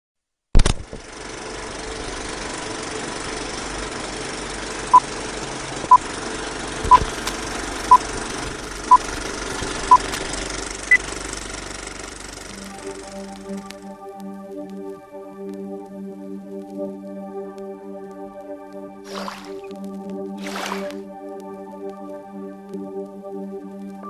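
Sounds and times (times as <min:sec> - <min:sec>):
film projector clattering: 0:01.0 - 0:13.8.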